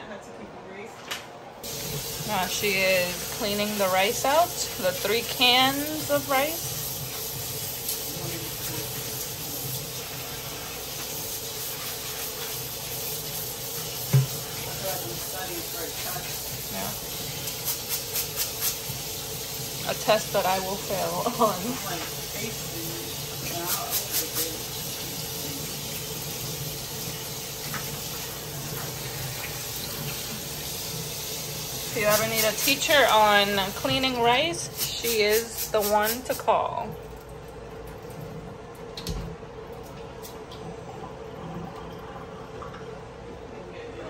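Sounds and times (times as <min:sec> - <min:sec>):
running tap water: 0:01.6 - 0:40.6
tap running into sink: 0:13.8 - 0:14.8, 0:27.6 - 0:30.7.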